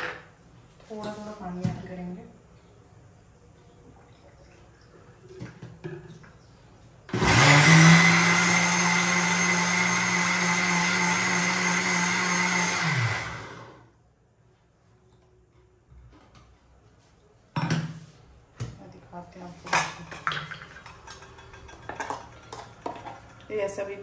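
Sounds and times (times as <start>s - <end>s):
mixer grinder whirring: 7.1s - 13.9s.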